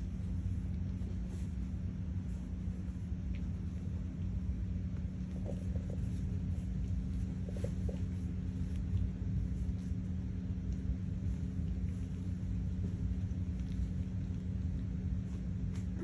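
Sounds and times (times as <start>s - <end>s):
low rumble with hum: 0.0s - 16.0s.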